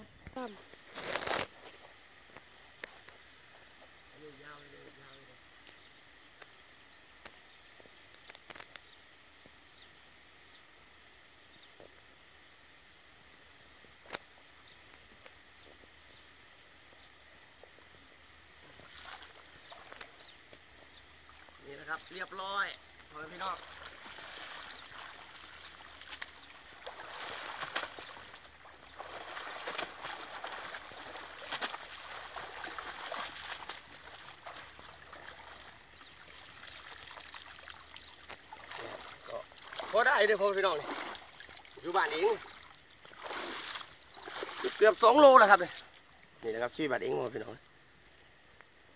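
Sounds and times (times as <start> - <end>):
insect drone: 0.0 - 48.9
faint sharp clicks: 2.3 - 3.2, 7.2 - 7.4, 8.1 - 8.9
water sloshing around wading person: 18.6 - 46.4.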